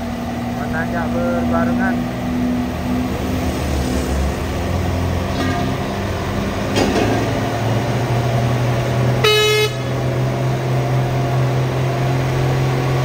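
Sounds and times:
diesel truck engines droning: 0:00.0 - 0:13.0
vehicle horn toot: 0:09.2 - 0:10.1.

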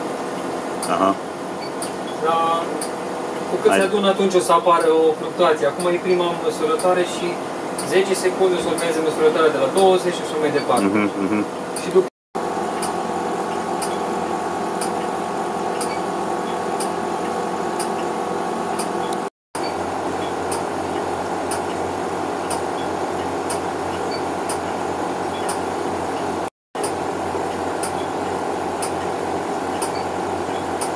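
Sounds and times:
mechanical hum of pumps and fans: 0:00.0 - 0:30.9
faint repeating tick: 0:21.5 - 0:21.7.

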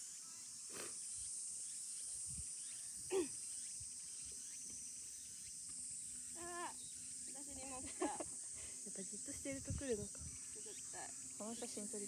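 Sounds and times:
falling-pitch insect call: 0:00.0 - 0:12.0
insects chorus: 0:00.0 - 0:12.0.

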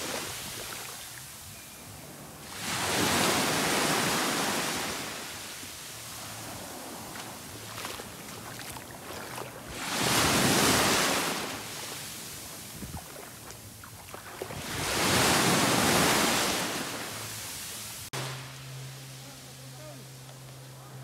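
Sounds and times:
waves washing on sandy beach: 0:00.0 - 0:01.5, 0:02.2 - 0:21.0.

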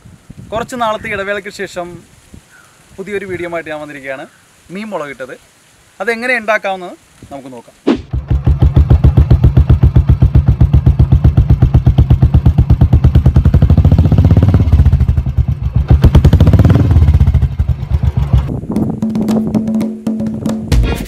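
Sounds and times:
motorcycle engine pulsing: 0:08.1 - 0:20.3.

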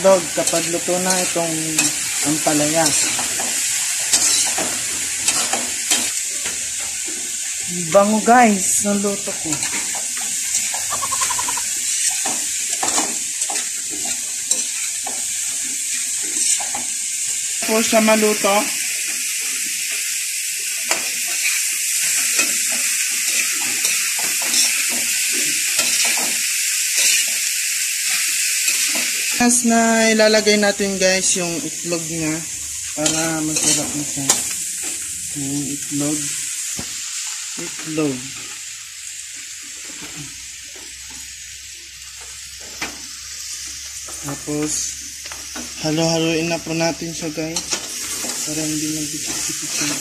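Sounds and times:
spatula scraping pan: 0:00.0 - 0:07.5, 0:09.5 - 0:17.0, 0:20.9 - 0:29.3
vegetables sizzling in wok: 0:00.0 - 0:50.0.

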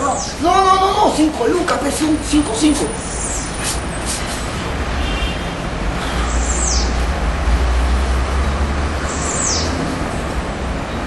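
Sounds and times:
bird chirping: 0:00.0 - 0:00.7, 0:02.1 - 0:04.4, 0:06.2 - 0:07.0, 0:09.1 - 0:09.8
low outdoor rumble and hiss: 0:00.0 - 0:04.9.

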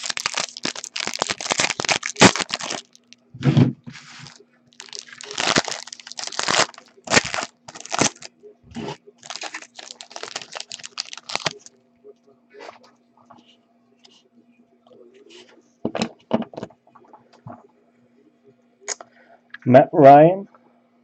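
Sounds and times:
foil wrapper crinkling and tearing: 0:00.0 - 0:03.1, 0:03.9 - 0:08.3, 0:09.2 - 0:11.7
faint steady hum: 0:00.0 - 0:21.0.

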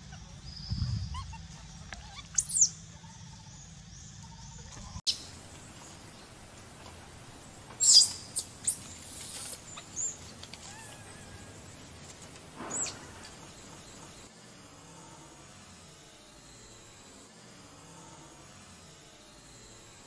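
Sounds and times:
baby monkey screaming: 0:00.9 - 0:02.8, 0:07.8 - 0:12.0, 0:12.6 - 0:13.7.

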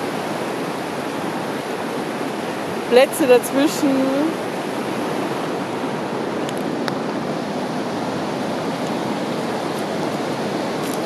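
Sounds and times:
river rushing: 0:00.0 - 0:11.0.

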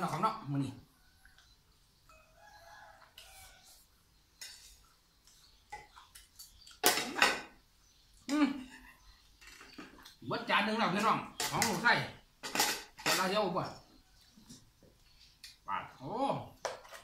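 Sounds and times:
rooster crowing: 0:02.1 - 0:03.8
spoons clinking against plates: 0:05.7 - 0:07.5, 0:11.0 - 0:13.4.

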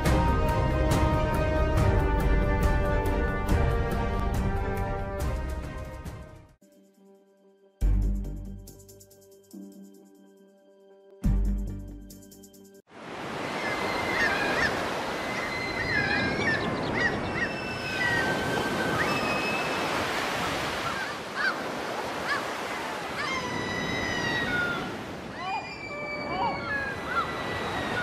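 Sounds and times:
birds chirping: 0:13.4 - 0:28.0.

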